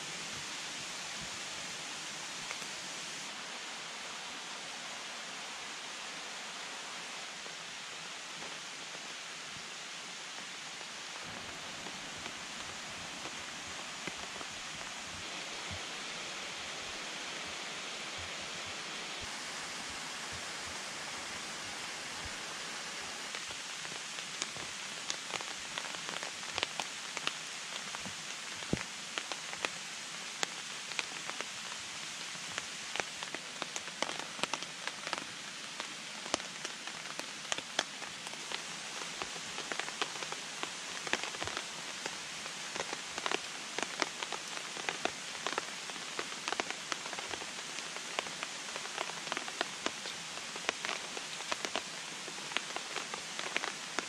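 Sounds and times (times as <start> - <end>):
raindrops tapping on a tarp: 0.0 - 3.3, 6.9 - 54.0
stream rushing: 0.0 - 54.0.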